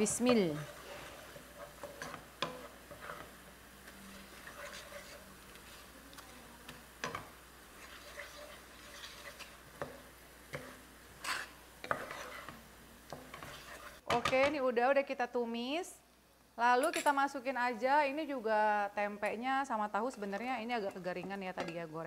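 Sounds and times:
paste sizzling in frying pan: 0.0 - 14.0
spatula scraping and knocking pan: 0.1 - 14.5.

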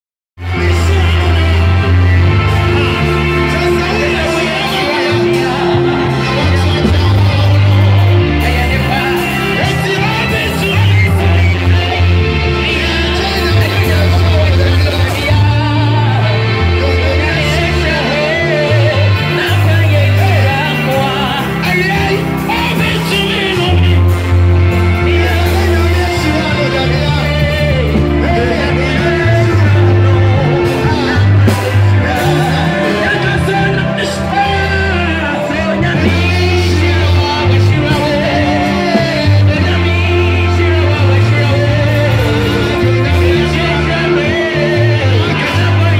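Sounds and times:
amplified music with heavy bass: 0.4 - 45.9
man singing into a microphone: 0.4 - 45.9.

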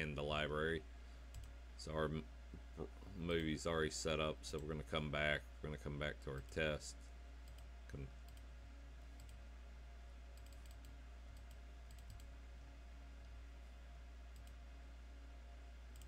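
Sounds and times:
low steady hum: 0.0 - 16.0
faint mouse clicks: 10.4 - 12.3, 14.3 - 14.6.

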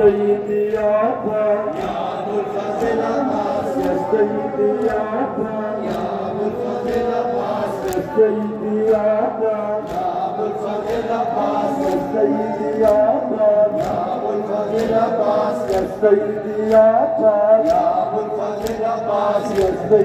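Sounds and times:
crowd chanting a lament: 0.0 - 20.0.

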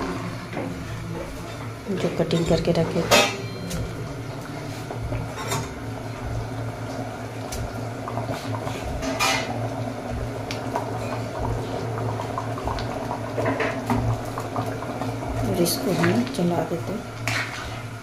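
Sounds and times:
curry bubbling in a pan: 3.9 - 18.0.

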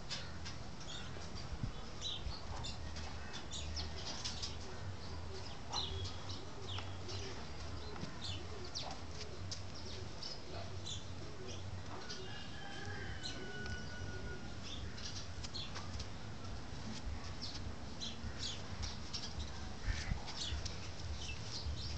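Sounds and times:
birds chirping: 0.0 - 21.9.

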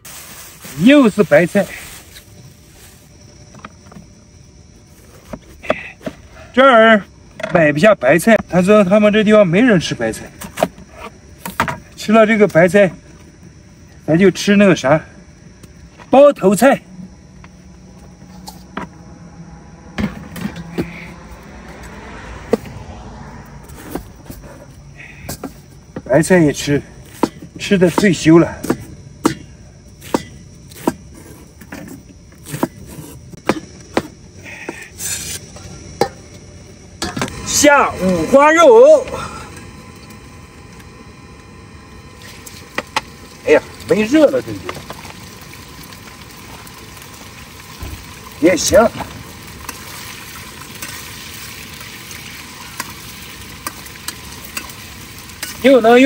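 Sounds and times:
meat sizzling in a pan: 42.2 - 56.0.

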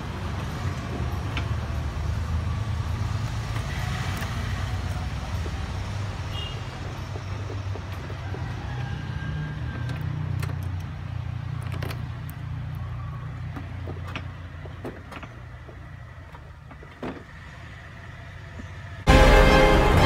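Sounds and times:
handling clicks and bump: 3.4 - 17.5.

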